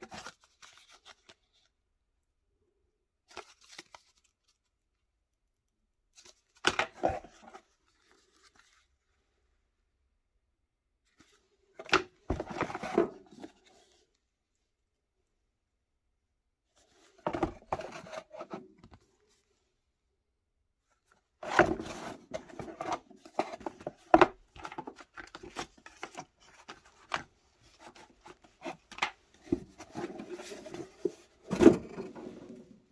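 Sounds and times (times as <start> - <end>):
cardboard rustling and scraping: 11.2 - 14.0, 16.8 - 19.4, 21.4 - 32.9.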